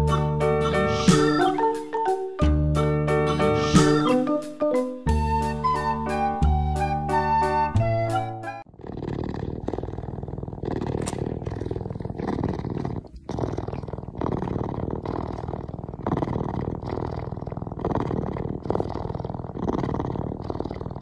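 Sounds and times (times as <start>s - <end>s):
puma cub purring: 0.0s - 4.4s, 8.6s - 21.0s.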